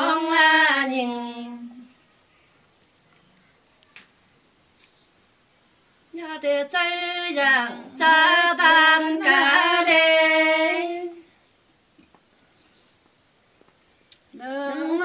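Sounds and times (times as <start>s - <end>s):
woman singing unaccompanied: 0.0s - 2.0s, 6.1s - 11.3s, 14.3s - 15.0s.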